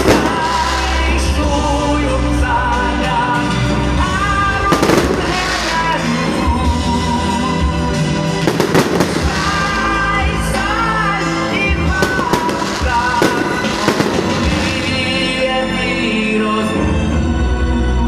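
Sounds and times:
fireworks bangs: 0:00.0 - 0:01.6, 0:04.7 - 0:07.0, 0:08.4 - 0:15.8
loud melodic music: 0:00.0 - 0:18.0.

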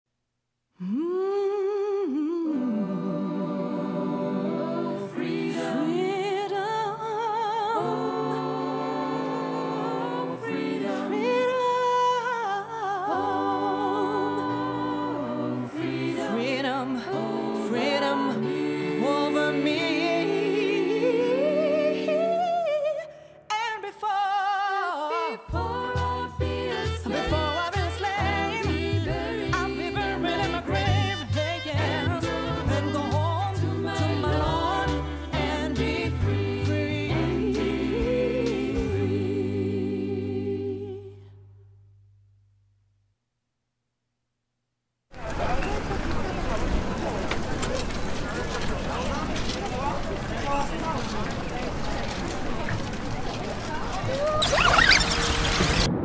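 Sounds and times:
layered voices singing long notes: 0:00.8 - 0:23.2, 0:24.7 - 0:41.4.

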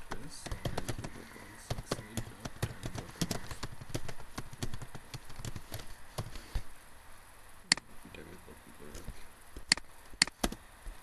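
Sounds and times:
computer keyboard typing: 0:00.1 - 0:06.4.

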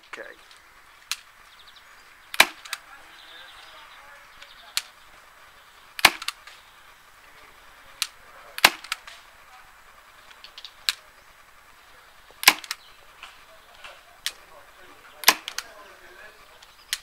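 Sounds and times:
airsoft pistol shots: 0:02.3 - 0:02.8, 0:06.0 - 0:06.6, 0:08.0 - 0:09.3, 0:12.4 - 0:12.8, 0:15.2 - 0:15.7
faint clicks: 0:04.4 - 0:05.2, 0:07.3 - 0:11.1, 0:12.3 - 0:15.9, 0:16.5 - 0:17.0.

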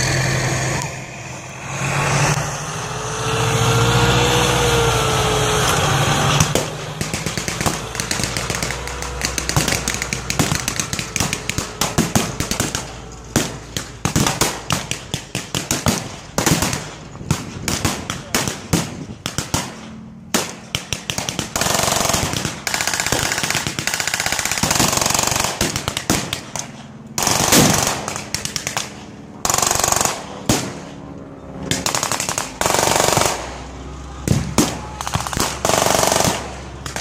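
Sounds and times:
rising and falling whine: 0:00.0 - 0:15.6, 0:24.9 - 0:37.0
tracked vehicle engine and tracks: 0:00.0 - 0:37.0
pyrotechnic pops: 0:05.6 - 0:37.0
blank gunfire crackle: 0:06.4 - 0:37.0.

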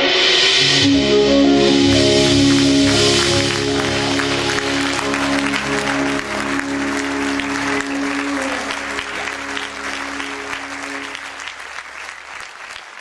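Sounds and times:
live band held chord: 0:00.0 - 0:12.8
audience applauding: 0:01.9 - 0:13.0.

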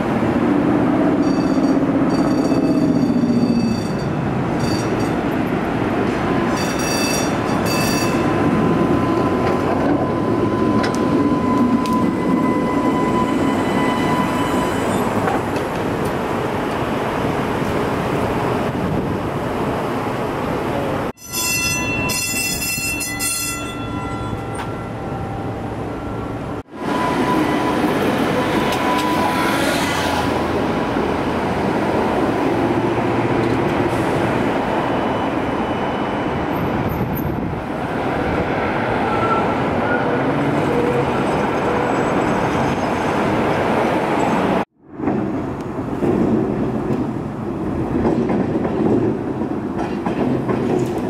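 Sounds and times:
streetcar wheels rumbling on rails: 0:00.0 - 0:51.0
high squealing whines: 0:07.7 - 0:15.3.

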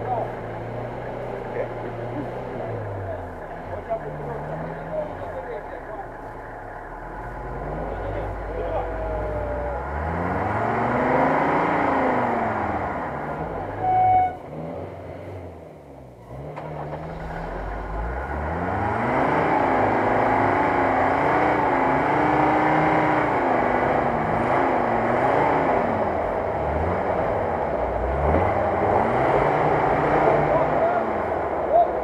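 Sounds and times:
engine revving hard under load: 0:07.0 - 0:32.0.

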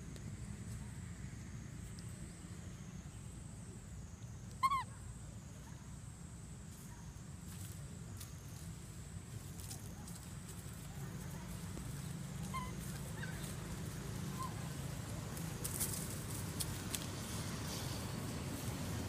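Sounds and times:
low outdoor rumble: 0:00.0 - 0:19.0
monkey cooing: 0:12.4 - 0:13.4.

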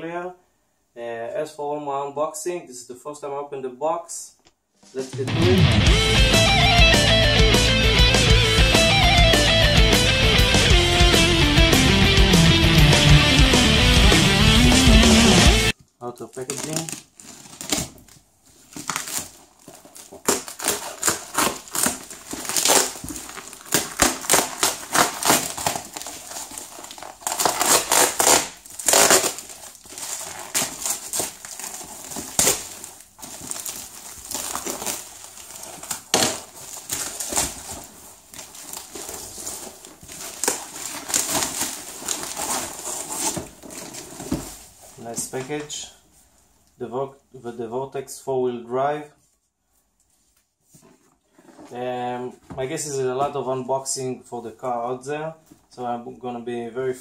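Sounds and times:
plastic and foam crinkling: 0:15.7 - 0:46.8, 0:49.2 - 0:53.4
sharp ripping of packaging: 0:16.2 - 0:44.7.

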